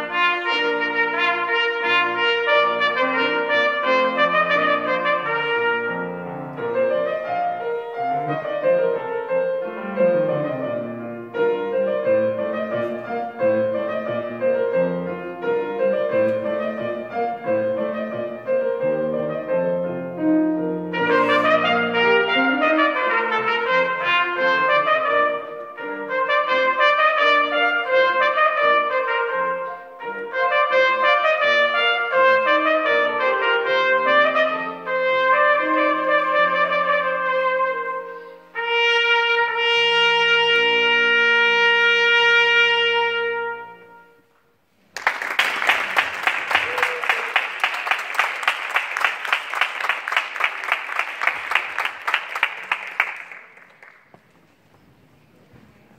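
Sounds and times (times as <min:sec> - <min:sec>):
piano accompaniment: 0:00.0 - 0:44.2
trumpet: 0:00.0 - 0:44.6
audience applauding: 0:44.9 - 0:54.4.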